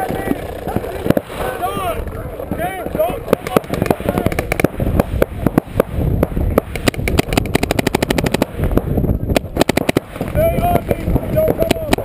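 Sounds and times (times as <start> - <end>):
paintball markers firing: 2.5 - 12.0.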